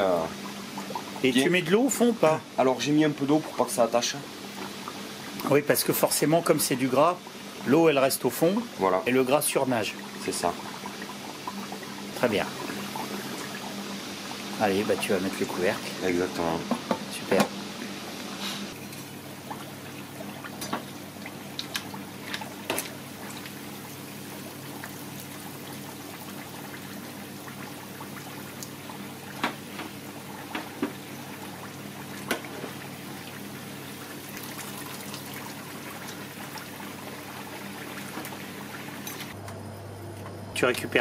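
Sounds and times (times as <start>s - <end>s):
hot fat dripping into a pot: 18.8s - 32.4s, 33.2s - 39.3s.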